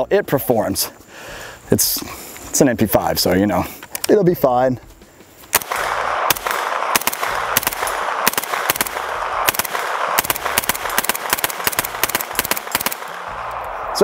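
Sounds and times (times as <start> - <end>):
pistol rapid shots: 5.5 - 13.6.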